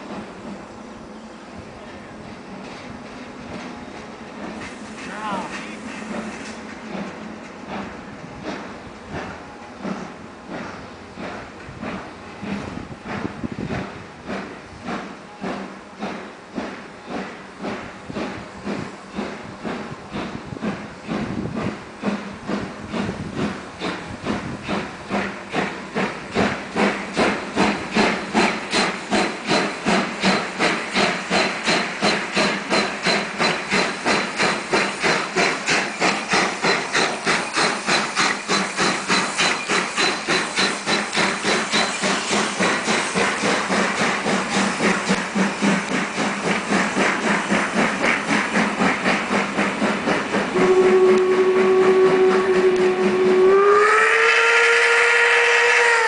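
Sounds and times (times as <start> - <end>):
steam hissing: 1.8 - 56.0
steam locomotive exhaust chuffs: 2.2 - 56.0
steam whistle: 50.5 - 56.0.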